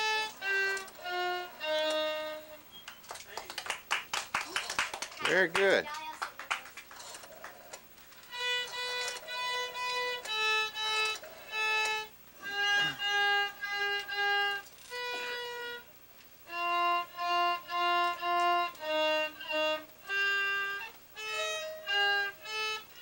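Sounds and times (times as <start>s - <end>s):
violin playing short bowed notes: 0.0s - 2.7s, 8.2s - 15.9s, 16.5s - 23.0s.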